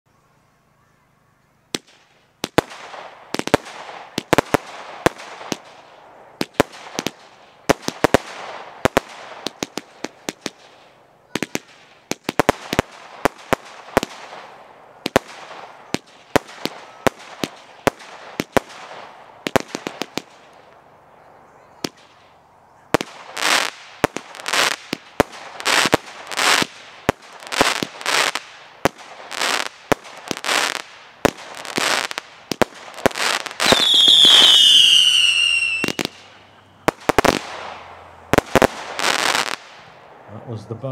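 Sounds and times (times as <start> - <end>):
firework bangs: 1.7 - 20.8, 21.7 - 40.9
firework crackling: 1.7 - 40.8.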